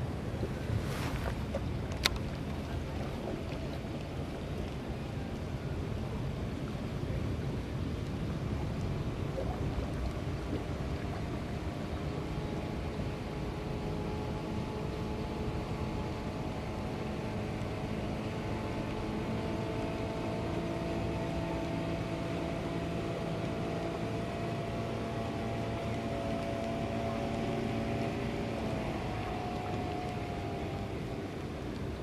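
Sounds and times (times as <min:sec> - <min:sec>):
boat engine running: 0:00.0 - 0:32.0.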